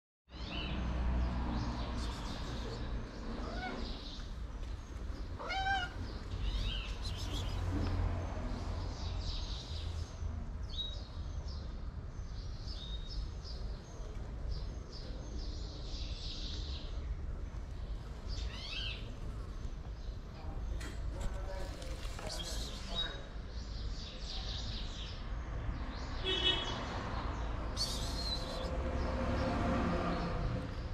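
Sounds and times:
cat meowing: 0:03.4 - 0:04.0, 0:05.4 - 0:06.8.

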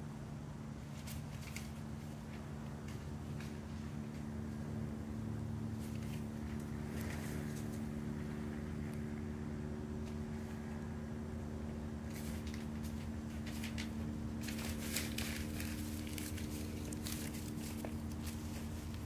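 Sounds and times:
steady low hum: 0:00.0 - 0:19.0
wood fire crackling: 0:11.6 - 0:19.0.

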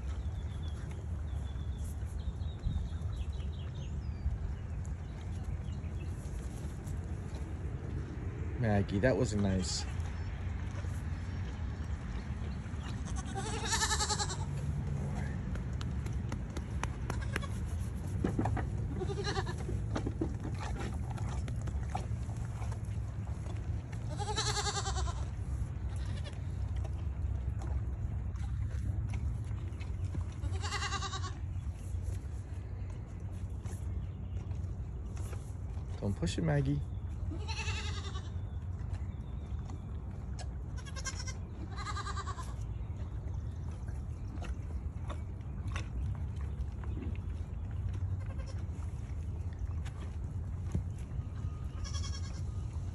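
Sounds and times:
low steady rumble: 0:00.0 - 0:52.9
goats bleating: 0:13.0 - 0:14.5, 0:19.0 - 0:19.6, 0:24.1 - 0:25.3, 0:30.4 - 0:31.4, 0:37.3 - 0:38.3, 0:40.8 - 0:42.5, 0:51.8 - 0:52.4.

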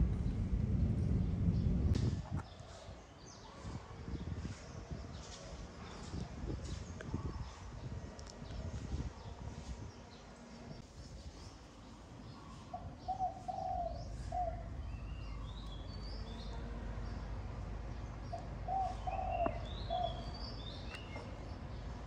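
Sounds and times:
low background rumble: 0:00.0 - 0:02.0
small birds chirping: 0:00.0 - 0:22.0
dove cooing: 0:12.8 - 0:15.5, 0:18.6 - 0:20.3.

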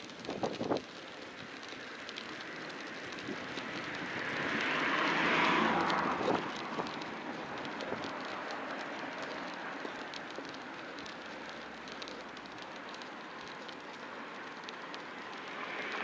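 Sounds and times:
vehicle passing by: 0:02.4 - 0:11.1, 0:14.9 - 0:16.0.

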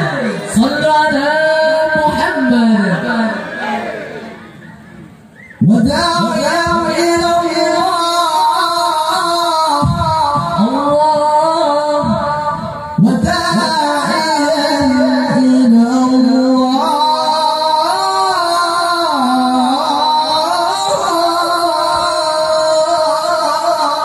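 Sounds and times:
man chanting recitation: 0:00.0 - 0:03.4, 0:05.6 - 0:24.0.

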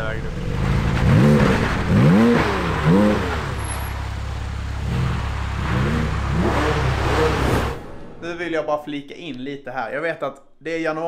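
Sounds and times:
low engine rumble: 0:00.0 - 0:08.9
engine revving in throttle blips: 0:00.3 - 0:07.8.

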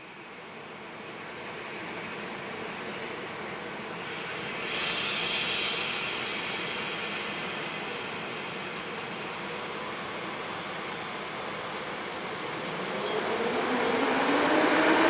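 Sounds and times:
electric locomotive humming: 0:00.0 - 0:15.0
loud hiss: 0:04.0 - 0:09.5.

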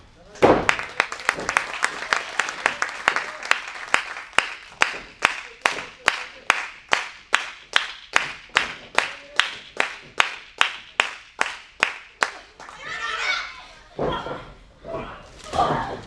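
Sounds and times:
crowd clapping in unison: 0:00.6 - 0:12.8.

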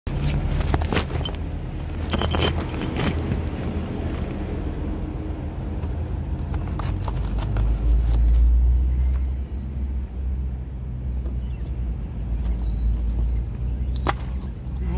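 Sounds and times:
sharp clicks and rustles: 0:00.1 - 0:04.6, 0:05.6 - 0:09.2.

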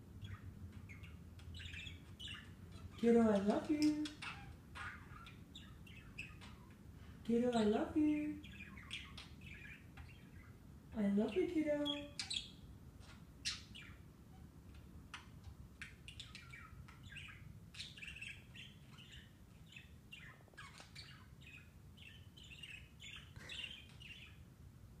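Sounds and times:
budgerigar chirping and twittering: 0:00.1 - 0:24.5.

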